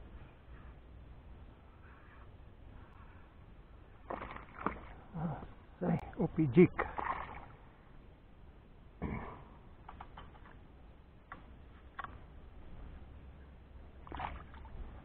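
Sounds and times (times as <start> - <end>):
fish splashing at surface: 4.0 - 5.0.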